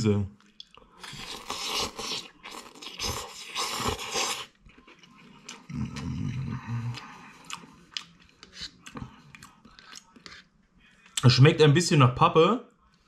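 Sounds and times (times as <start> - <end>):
chewing: 0.4 - 11.2
noodles being slurped: 1.0 - 6.1
person humming mmm: 5.7 - 7.3.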